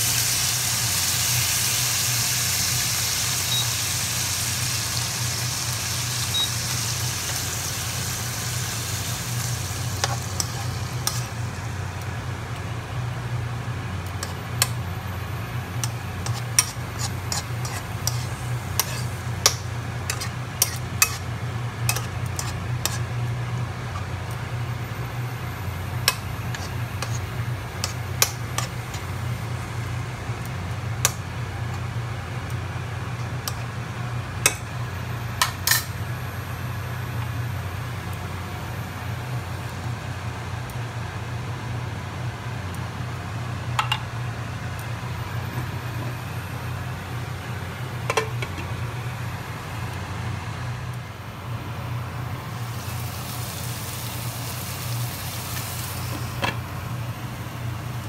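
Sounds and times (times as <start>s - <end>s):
meat frying in oil: 0.0s - 43.8s, 51.4s - 58.0s
steady low hum: 3.8s - 58.0s
metal spoon scraping a pan: 10.0s - 11.4s, 14.2s - 14.7s, 15.8s - 21.3s, 21.9s - 23.1s, 26.1s - 29.0s, 35.6s - 35.9s.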